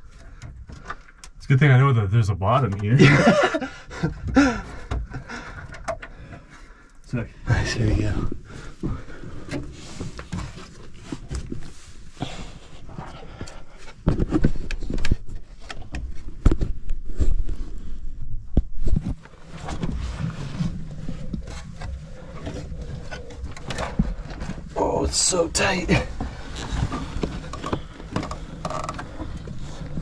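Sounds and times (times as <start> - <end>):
person breathing hard: 3.6 - 7.0, 12.2 - 14.1.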